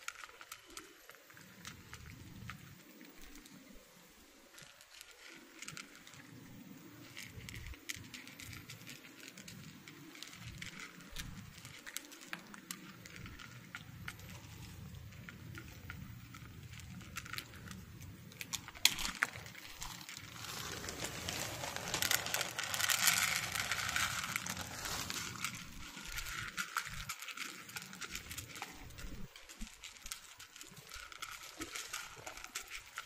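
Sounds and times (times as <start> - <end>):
cats crunching dry kibble: 0.0 - 33.0
plastic bag crinkling: 7.0 - 33.0
kibble poured onto dish: 18.9 - 27.0.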